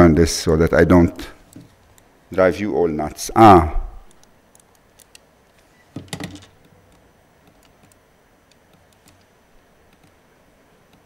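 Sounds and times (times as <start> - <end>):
computer keys and mouse clicking: 4.1 - 5.3, 6.2 - 9.3, 9.9 - 10.2
handling knock: 5.9 - 6.8.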